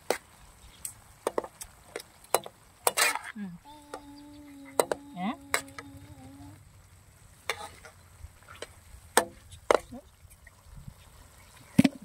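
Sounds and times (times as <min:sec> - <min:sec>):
metal spatula scraping a pan: 0:02.8 - 0:03.3, 0:07.4 - 0:08.7.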